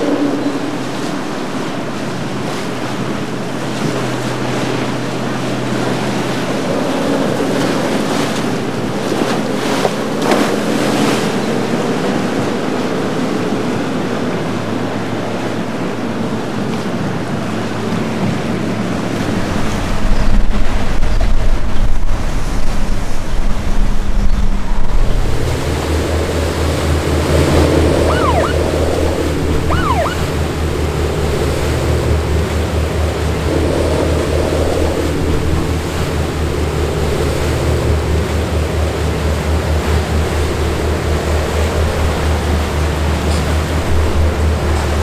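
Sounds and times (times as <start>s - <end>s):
boat engine drone: 0.0s - 45.0s
churning water and breaking waves: 0.0s - 45.0s
whistle-like chirps: 28.1s - 28.6s, 29.7s - 30.3s.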